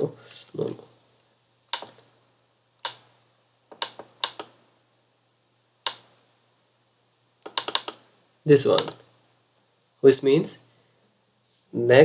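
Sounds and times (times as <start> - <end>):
computer mouse clicking: 1.7 - 2.0, 2.8 - 3.0, 3.7 - 4.6, 5.8 - 6.1, 7.4 - 8.0, 8.7 - 9.1.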